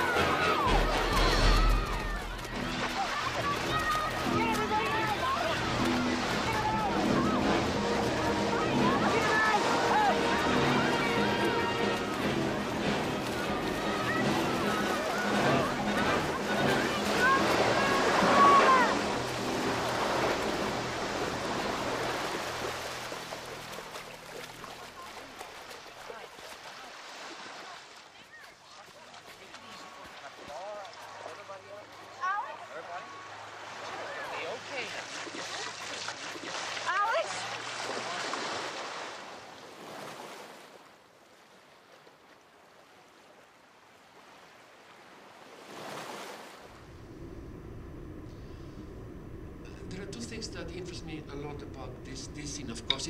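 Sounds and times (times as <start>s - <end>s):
crowd shouting: 0.0s - 19.3s
ocean surf washing onto beach: 0.0s - 28.0s, 44.2s - 53.0s
water splashing: 0.0s - 53.0s.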